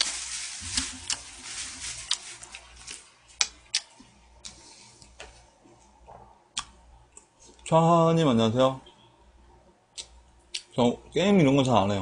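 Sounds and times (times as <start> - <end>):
chewing rice: 0.0 - 5.2.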